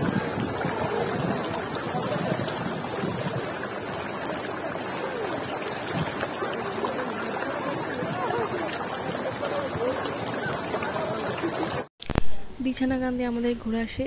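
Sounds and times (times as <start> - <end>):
river water flowing over pebbles: 0.0 - 12.2.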